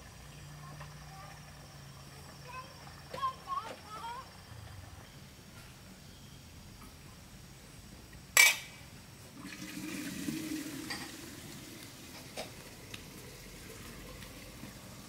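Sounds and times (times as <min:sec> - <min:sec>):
water pouring: 0:09.3 - 0:15.0.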